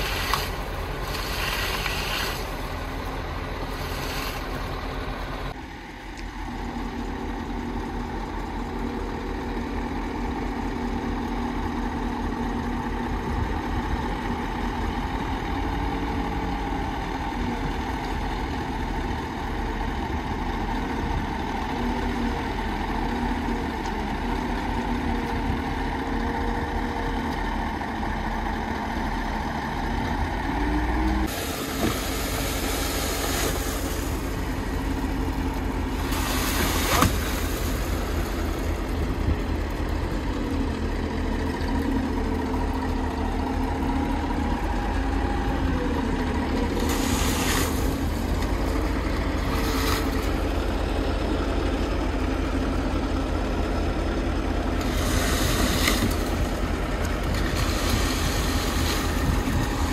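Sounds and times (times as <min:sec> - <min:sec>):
diesel truck engines running: 0:00.0 - 0:59.9.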